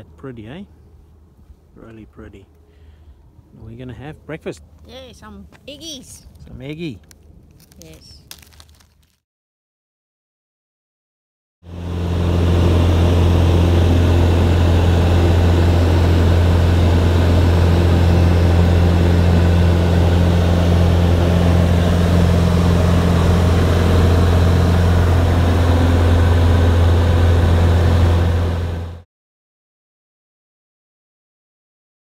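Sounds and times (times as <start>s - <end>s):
light aircraft engine droning: 0.0s - 7.6s, 11.7s - 29.0s.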